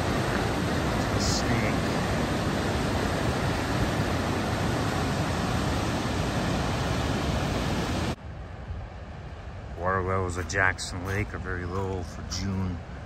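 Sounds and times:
roar of rushing whitewater: 0.0 - 8.2
water hiss: 0.0 - 8.2.

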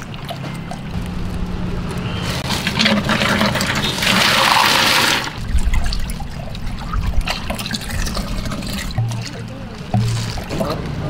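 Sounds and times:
plastic scoop sloshing drink: 2.0 - 10.8.

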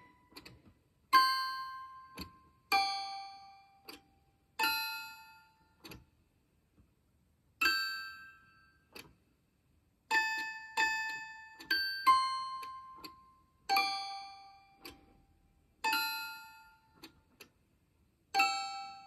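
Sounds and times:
toy piano notes: 0.0 - 6.0, 7.6 - 9.1, 10.1 - 15.1, 15.8 - 17.2, 18.3 - 19.0.

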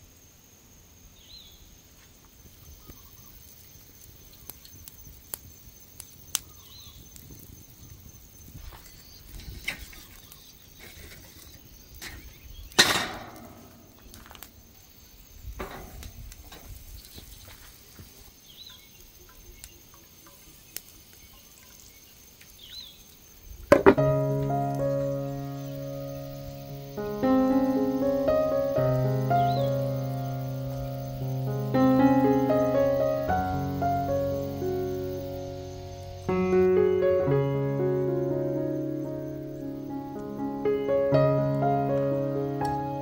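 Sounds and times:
loud metal clatter: 12.8 - 14.5.

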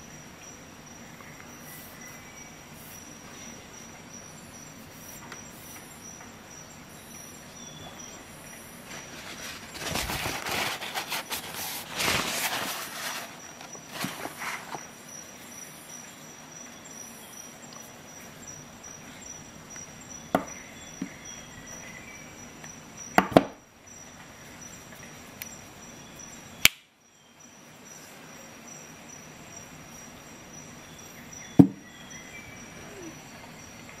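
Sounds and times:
faint steady hiss: 0.0 - 34.0.

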